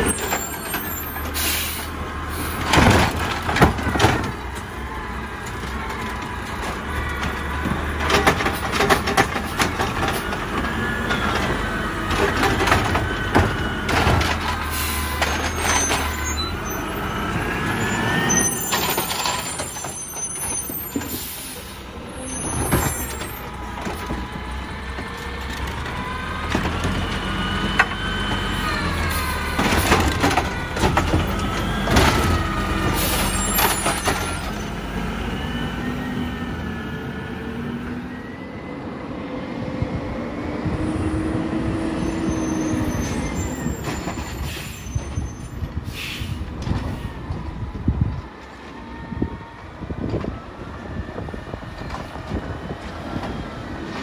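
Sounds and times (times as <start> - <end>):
air brake hisses: 1.3 - 2.6, 44.4 - 45.1, 45.8 - 47.0
garbage truck engine running: 20.6 - 38.4.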